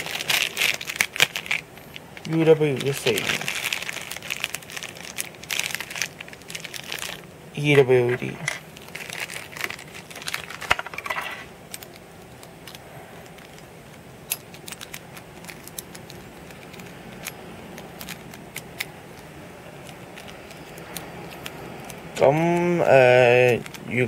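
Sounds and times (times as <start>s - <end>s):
plastic bag crinkle: 0.0s - 24.0s
plastic parts clicking and clattering: 2.2s - 23.9s.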